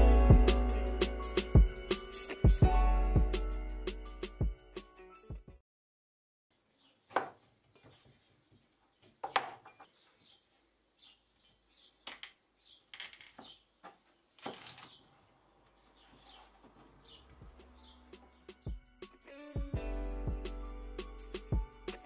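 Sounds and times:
birds chirping faintly: 0:06.5 - 0:19.0.

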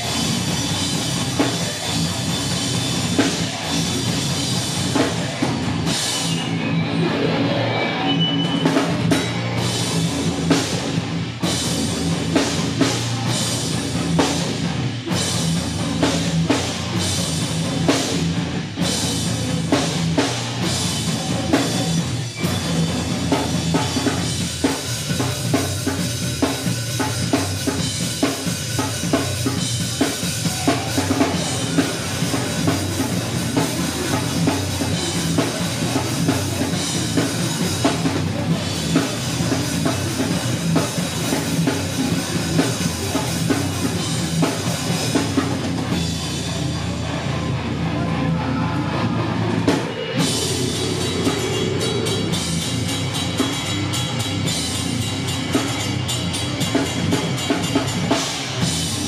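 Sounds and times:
heavy rock band playing: 0:00.0 - 0:59.0
bass drum and cymbal hits: 0:49.8 - 0:59.0.

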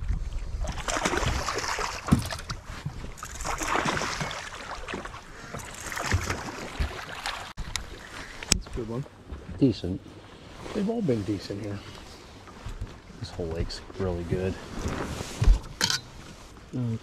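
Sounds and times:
fish splashing in water: 0:00.6 - 0:02.6, 0:03.2 - 0:08.1.

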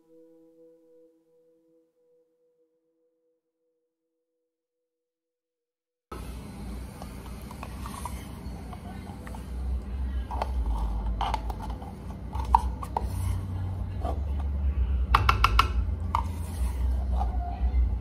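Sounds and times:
steady low hum: 0:06.1 - 0:18.0
utensils clicking and scraping: 0:10.2 - 0:14.4.

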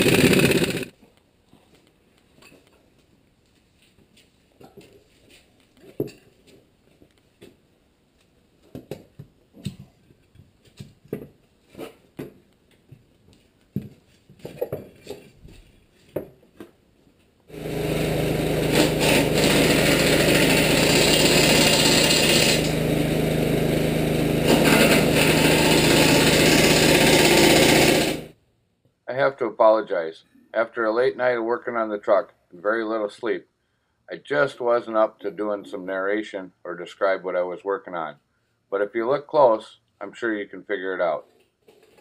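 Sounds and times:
power tool running on steel: 0:00.0 - 0:00.9, 0:17.5 - 0:28.4.

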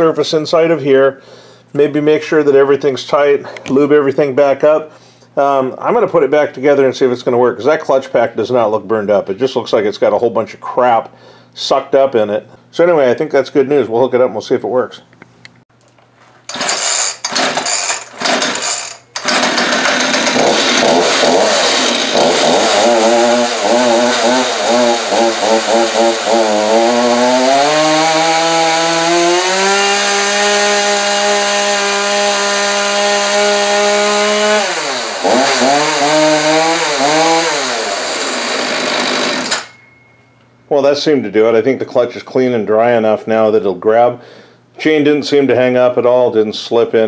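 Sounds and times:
chainsaw starting and revving: 0:16.5 - 0:39.7.

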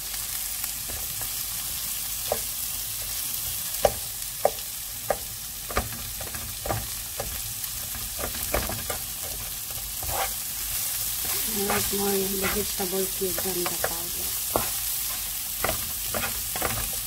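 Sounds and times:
vegetables sizzling in a frying pan: 0:00.0 - 0:17.0
wooden spoon knocking against pan: 0:13.3 - 0:14.8.

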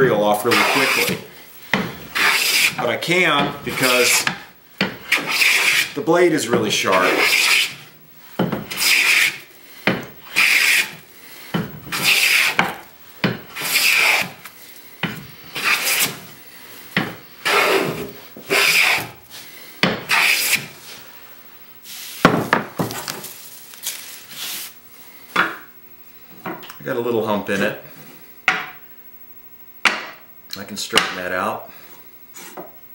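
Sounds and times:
hand plane rasping on wood: 0:00.4 - 0:01.2, 0:02.1 - 0:07.9, 0:08.6 - 0:11.0, 0:11.9 - 0:12.8, 0:13.5 - 0:14.4, 0:15.5 - 0:16.2, 0:17.4 - 0:19.2, 0:20.0 - 0:20.7.

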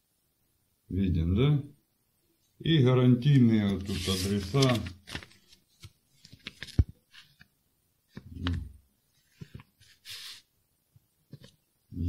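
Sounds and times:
paper rustling: 0:03.3 - 0:07.5, 0:09.2 - 0:10.5.

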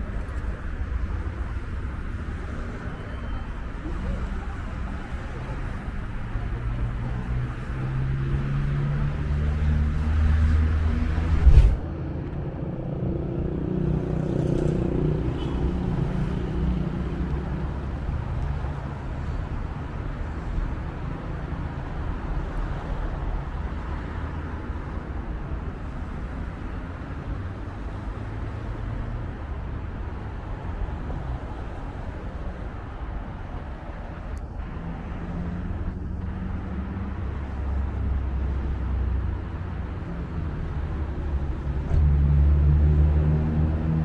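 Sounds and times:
cars passing in low hum: 0:03.8 - 0:44.0
vehicle engine passing: 0:07.8 - 0:11.8.

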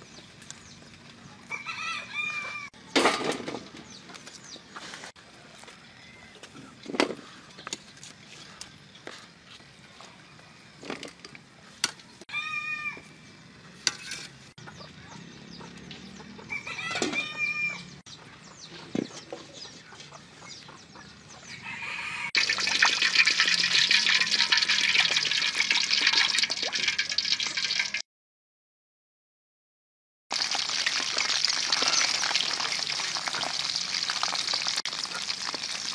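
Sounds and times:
chickens calling: 0:00.0 - 0:09.4, 0:14.6 - 0:25.4
loud crackling sizzle of frying: 0:22.4 - 0:28.0, 0:30.3 - 0:35.9.

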